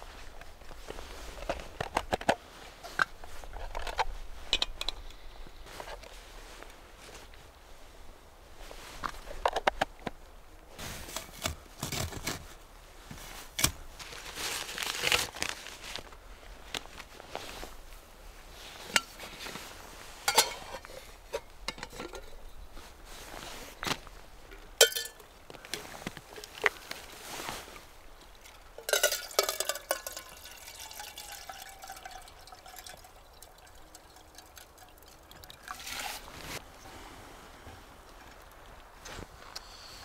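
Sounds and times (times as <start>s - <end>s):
metal kettle clinking: 20.3s - 22.4s, 24.8s - 25.2s, 28.8s - 36.0s
water pouring into kettle: 28.8s - 36.3s.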